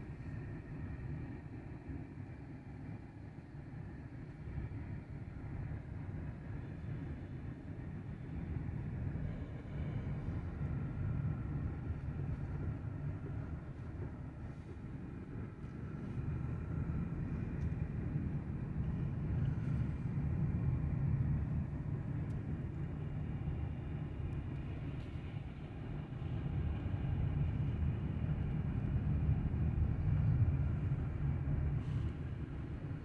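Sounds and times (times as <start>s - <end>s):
car engine and tyres rumbling: 3.9s - 33.0s.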